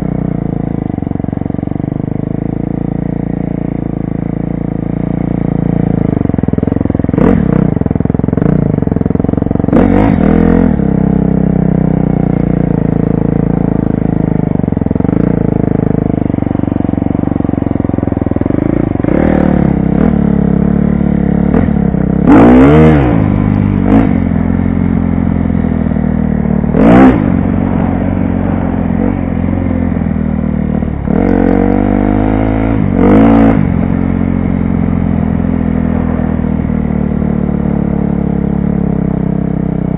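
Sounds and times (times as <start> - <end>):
dirt bike engine revving: 5.8 - 11.1, 13.6 - 30.2, 31.0 - 34.1.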